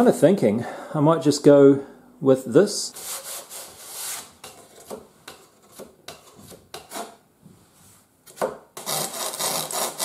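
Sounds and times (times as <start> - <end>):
wood scraping against wood: 2.9 - 7.2
sandpaper scrubbing: 3.0 - 4.3, 8.8 - 10.0.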